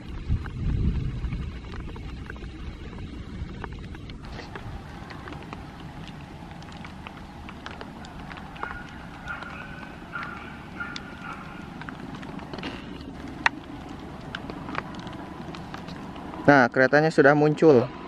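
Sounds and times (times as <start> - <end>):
steady rain falling: 4.3 - 16.5.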